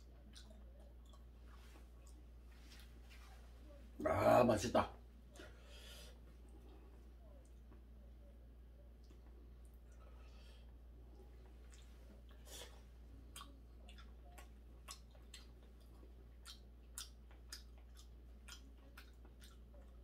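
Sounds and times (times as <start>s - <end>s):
man chewing: 0.0s - 3.0s, 9.0s - 20.0s
faint low hum: 0.0s - 20.0s.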